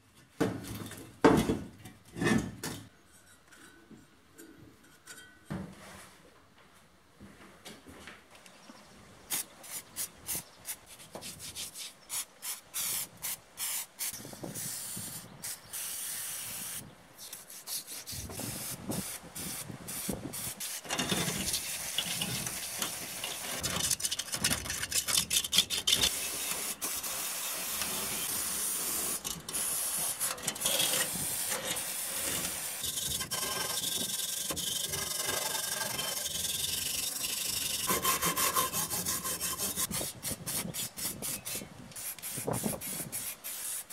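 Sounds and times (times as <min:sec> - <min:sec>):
metal scraper scratching rust: 0:20.6 - 0:41.6.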